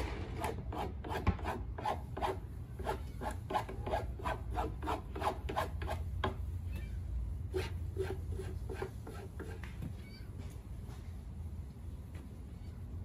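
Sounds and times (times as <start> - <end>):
rasp scraping wood: 0.4 - 6.4, 7.5 - 9.7.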